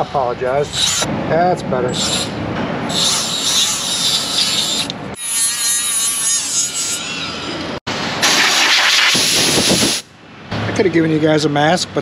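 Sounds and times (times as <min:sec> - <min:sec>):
rotary tool high whine: 0:01.9 - 0:09.8
rotary tool grinding metal: 0:02.9 - 0:07.7.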